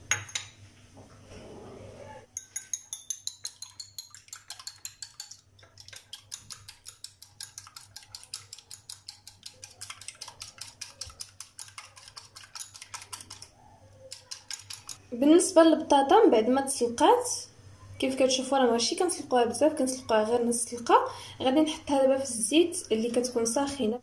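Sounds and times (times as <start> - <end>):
whisk clicking against ceramic bowl: 2.4 - 15.0.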